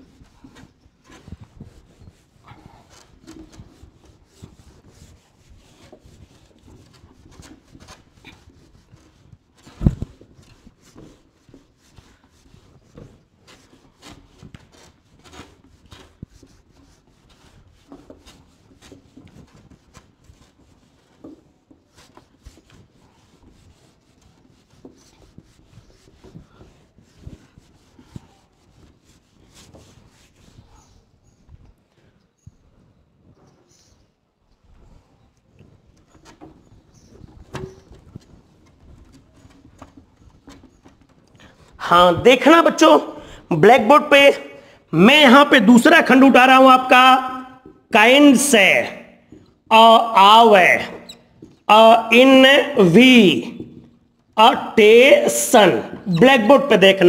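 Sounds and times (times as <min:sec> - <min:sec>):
eraser scrubbing whiteboard: 0:00.0 - 0:31.1.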